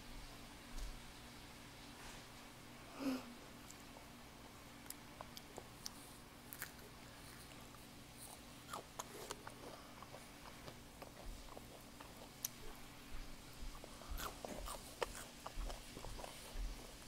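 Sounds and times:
low steady hum: 0.0 - 17.0
child chewing crisp food: 4.7 - 17.0.

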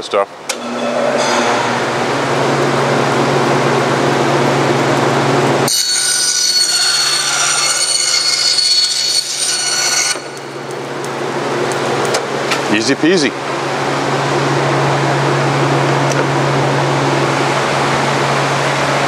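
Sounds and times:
bandsaw blade whining: 0.5 - 10.7
bandsaw humming: 0.5 - 12.8.

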